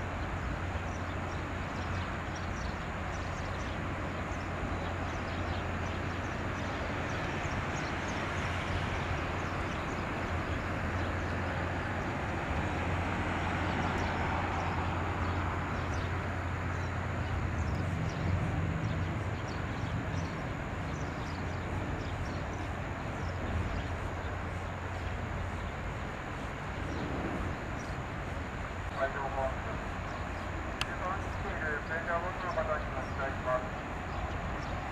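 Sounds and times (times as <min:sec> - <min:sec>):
water wash rushing: 0:00.0 - 0:17.6
boat engine drone: 0:00.0 - 0:34.9.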